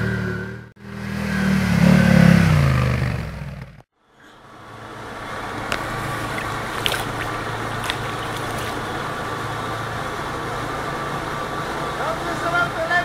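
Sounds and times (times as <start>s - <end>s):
water splashing: 4.2s - 11.8s.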